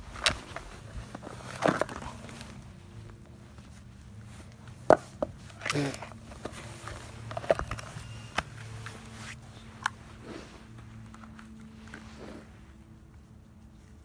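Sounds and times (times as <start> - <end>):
dry grass rustling: 0.0 - 14.0
short voice sound: 5.6 - 6.1.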